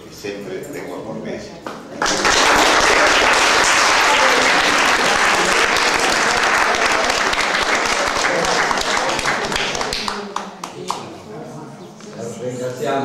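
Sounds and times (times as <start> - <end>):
audience applauding: 2.0 - 11.0.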